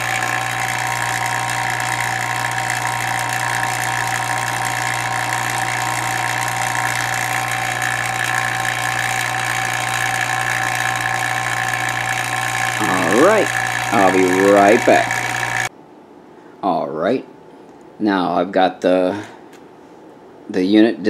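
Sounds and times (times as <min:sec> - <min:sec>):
vacuum pump humming: 0:00.0 - 0:15.7.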